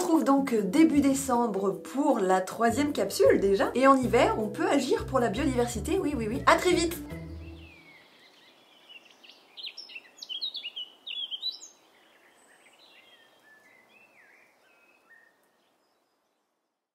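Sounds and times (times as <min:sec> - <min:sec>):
soft outdoor hiss: 0:00.0 - 0:16.9
birds chirping and whistling: 0:06.6 - 0:15.4.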